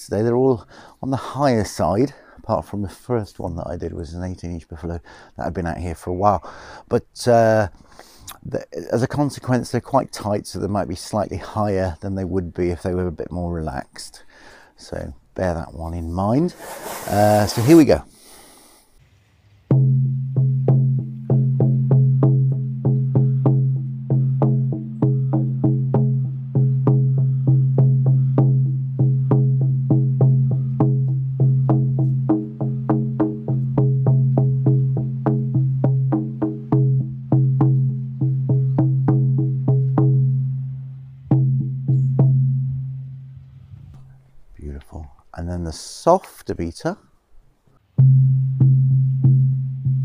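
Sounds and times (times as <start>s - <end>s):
frame drum beaten: 19.7s - 43.3s, 48.0s - 50.0s.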